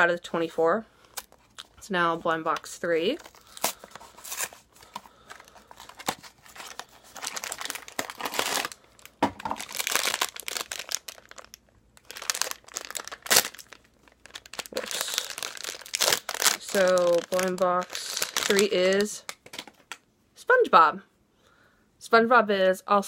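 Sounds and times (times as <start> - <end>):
packaging crinkling and tearing: 3.1 - 20.0.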